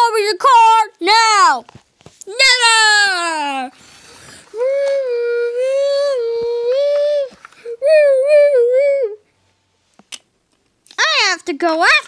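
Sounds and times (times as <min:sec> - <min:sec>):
child imitating a police siren: 0:04.6 - 0:09.2.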